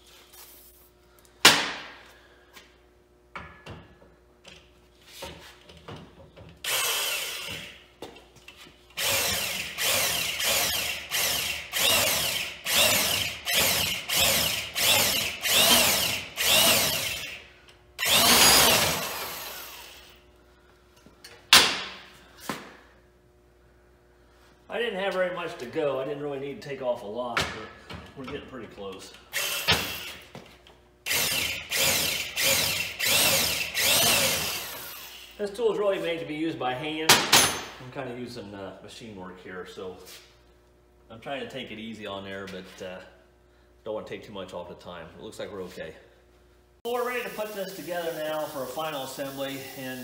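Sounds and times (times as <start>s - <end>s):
power drill cutting metal: 6.7s - 7.7s, 9.0s - 17.4s, 18.0s - 20.1s, 29.4s - 30.2s, 31.1s - 35.4s.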